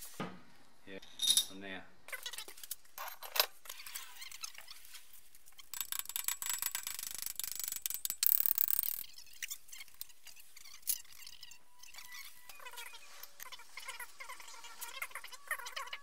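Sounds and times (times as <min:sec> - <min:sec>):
metal parts clicking and knocking: 0:05.6 - 0:11.3.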